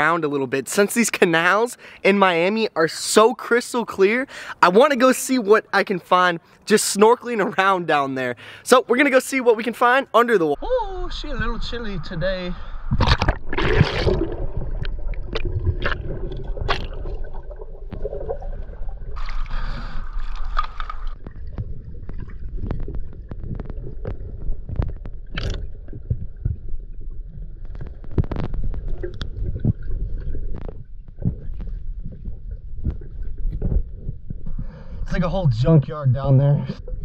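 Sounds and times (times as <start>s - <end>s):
underwater clicks and crackles: 12.9s - 35.0s
muffled underwater rumble: 14.0s - 35.7s.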